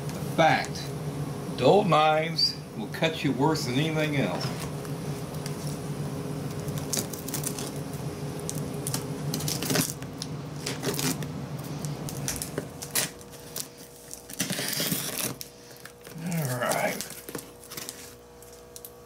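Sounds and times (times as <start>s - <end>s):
tape ripping: 6.5s - 7.8s, 8.4s - 11.3s, 12.0s - 19.0s
hands scraping packing tape: 8.5s - 10.0s, 10.6s - 11.2s, 12.1s - 18.8s.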